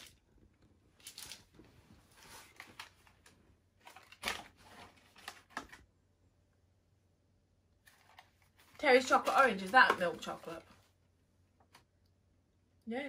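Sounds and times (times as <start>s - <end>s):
wrapper and box crinkling: 0.0s - 0.3s, 1.0s - 5.8s.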